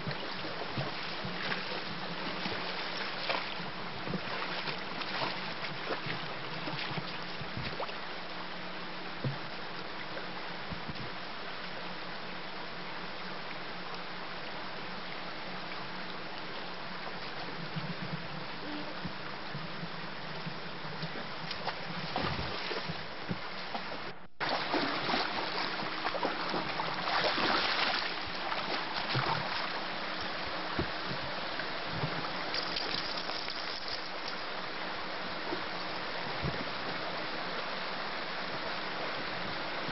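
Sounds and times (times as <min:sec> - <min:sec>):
stream running over stones: 0:00.0 - 0:39.9
dog splashing through water: 0:24.4 - 0:29.6.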